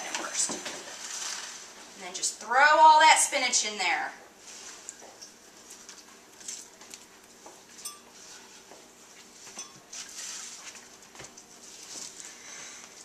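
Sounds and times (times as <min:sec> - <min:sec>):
dishes clinking and tapping: 0:07.8 - 0:08.2.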